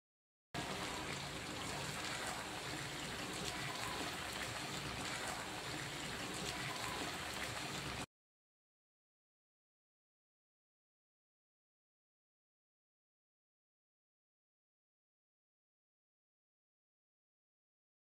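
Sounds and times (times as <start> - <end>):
chicken frying in oil: 0.6 - 8.1.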